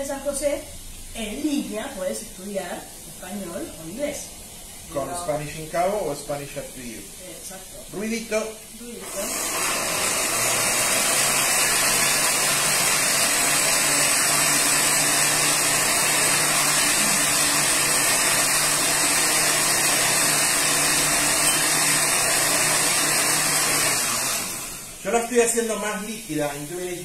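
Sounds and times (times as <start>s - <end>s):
blender running: 8.8s - 26.0s.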